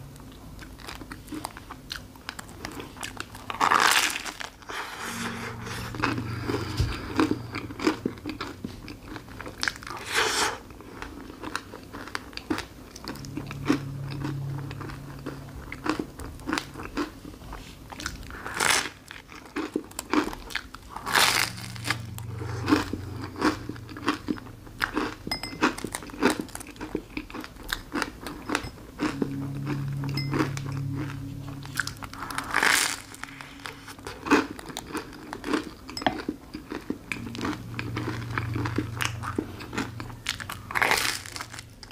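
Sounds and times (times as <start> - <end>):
crackly chewing: 0.2 - 4.7.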